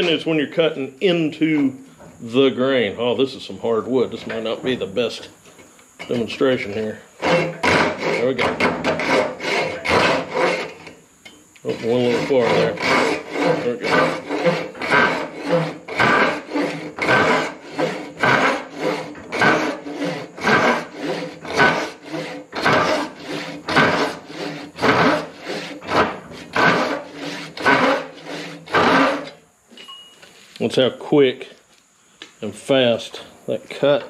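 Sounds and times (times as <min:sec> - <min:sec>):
pull saw rasping through wood: 0:06.1 - 0:11.0, 0:11.6 - 0:29.4.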